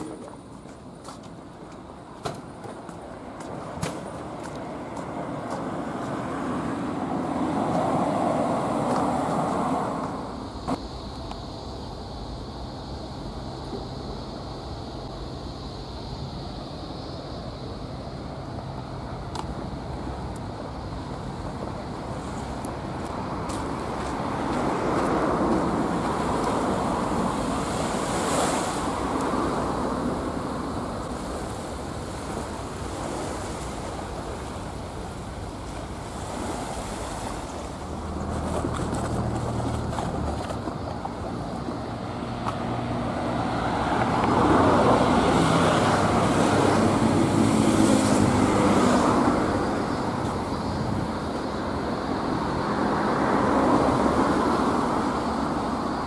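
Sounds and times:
waves washing in: 0:00.0 - 0:10.8, 0:16.2 - 0:56.0
vehicle engine hum passing: 0:34.3 - 0:55.9.

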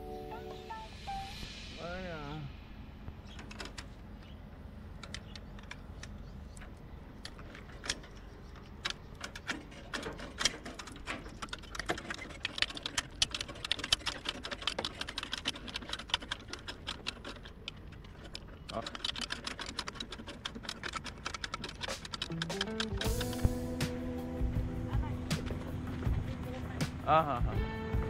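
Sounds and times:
steel chain rattling: 0:09.2 - 0:23.3.

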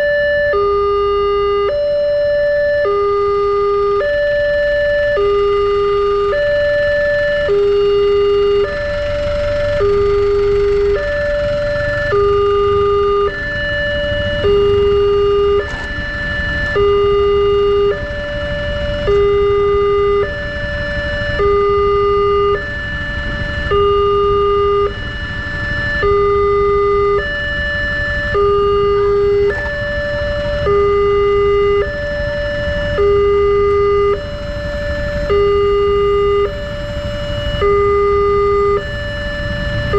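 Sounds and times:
level crossing two-tone alarm: 0:00.0 - 0:39.9.

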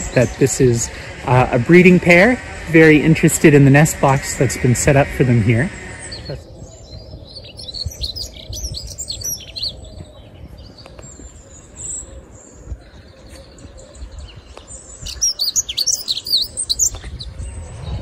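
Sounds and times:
hedge trimmers humming: 0:00.0 - 0:09.8
robin singing: 0:00.0 - 0:18.0.

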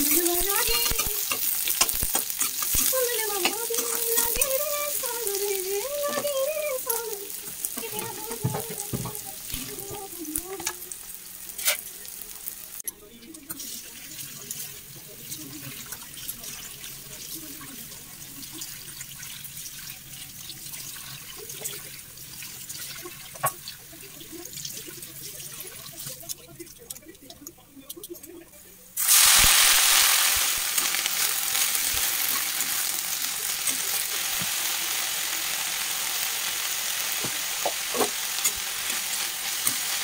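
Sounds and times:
onion sizzling in oil: 0:00.0 - 0:27.1, 0:28.7 - 0:40.0
tap water running into colander: 0:02.2 - 0:10.1.

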